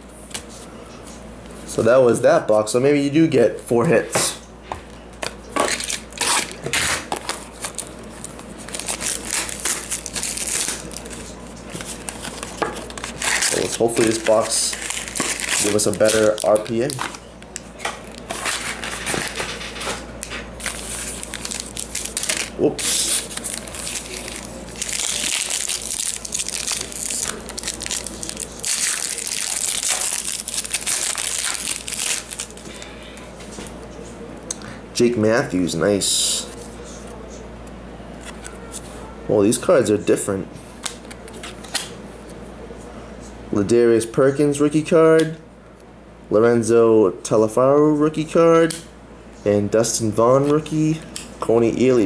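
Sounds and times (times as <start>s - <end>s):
foil wrapper crinkling and ripping: 5.7s - 19.8s, 20.6s - 32.9s
cardboard crinkling and rustling: 20.6s - 32.6s.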